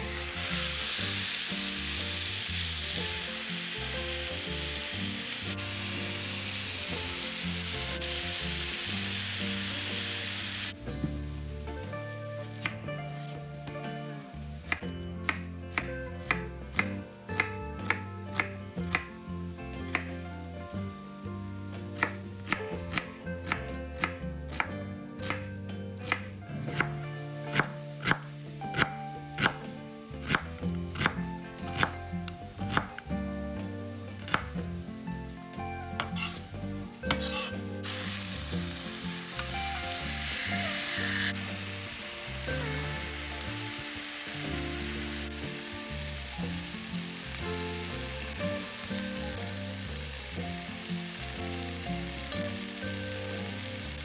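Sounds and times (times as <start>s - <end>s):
food sizzling in hot oil: 0.0s - 10.8s, 36.0s - 54.0s
knife chopping on cutting board: 36.0s - 36.4s, 37.1s - 37.5s.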